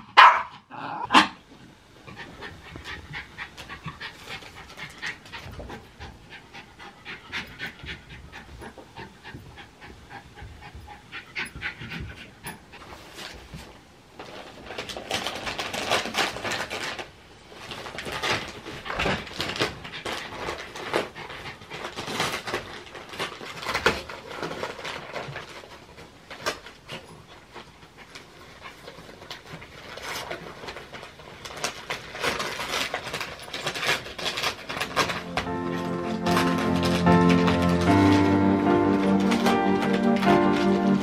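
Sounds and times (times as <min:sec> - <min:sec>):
dog panting: 0:02.1 - 0:13.1.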